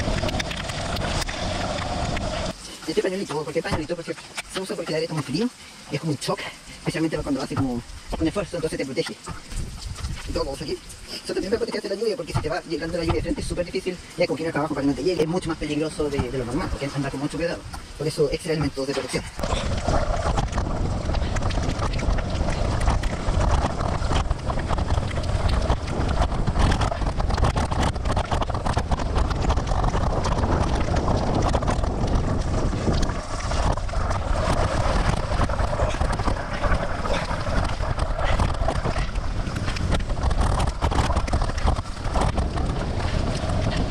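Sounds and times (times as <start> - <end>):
wind buffeting microphone: 0.0 - 4.4, 6.6 - 43.9
tyres on wet road: 0.0 - 43.9
bike knocks and ticks: 20.2 - 43.9.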